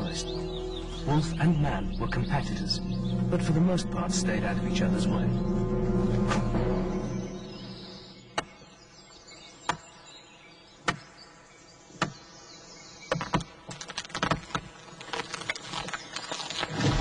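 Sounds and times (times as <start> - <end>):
wood splintering and cracking: 13.1 - 17.0.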